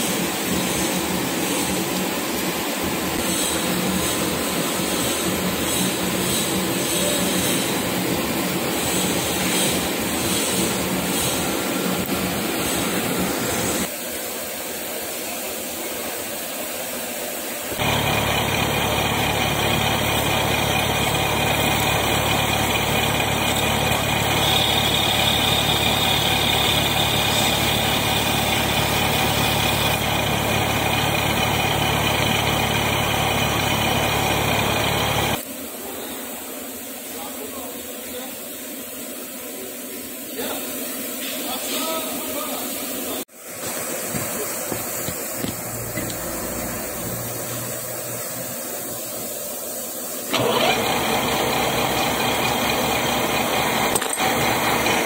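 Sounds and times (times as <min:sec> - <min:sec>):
metal lathe running: 0:02.8 - 0:13.9, 0:17.7 - 0:35.4, 0:50.3 - 0:55.0.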